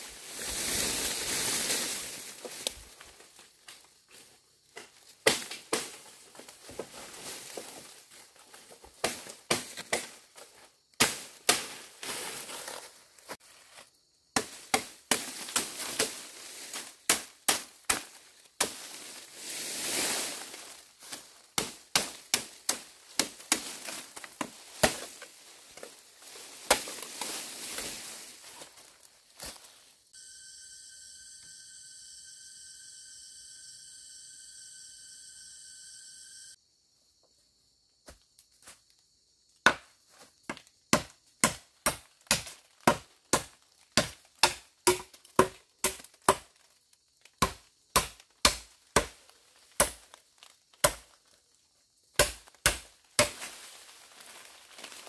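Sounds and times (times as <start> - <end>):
rustling: 0.0 - 3.4
blade chopping bamboo: 4.8 - 6.1, 8.9 - 10.2, 11.0 - 12.1, 14.4 - 16.2, 16.8 - 19.0, 21.6 - 25.2, 26.6 - 27.0, 39.7 - 39.9, 40.9 - 46.5, 47.4 - 49.2, 49.8 - 50.1, 50.8 - 51.1, 52.2 - 53.5.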